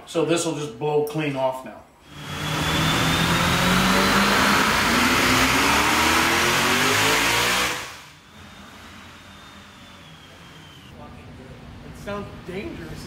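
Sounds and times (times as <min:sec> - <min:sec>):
engine revving at full throttle: 0:02.1 - 0:10.9
turbo whistle: 0:07.8 - 0:11.0.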